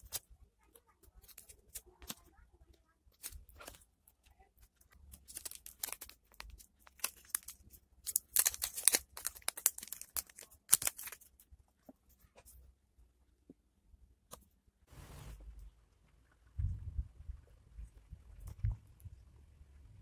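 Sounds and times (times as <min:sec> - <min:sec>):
plastic packaging crinkling: 0:03.1 - 0:11.4
tearing: 0:04.9 - 0:11.3.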